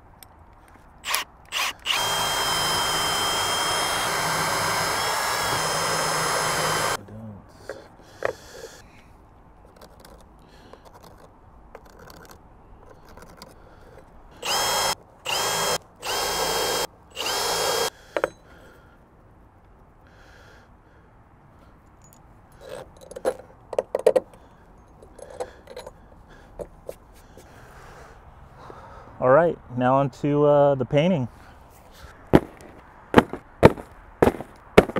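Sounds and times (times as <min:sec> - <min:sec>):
cordless drill whining: 0:01.0 - 0:07.0, 0:14.4 - 0:18.3
sharp knocks of parts: 0:18.1 - 0:18.5, 0:22.0 - 0:24.4, 0:32.3 - 0:34.9.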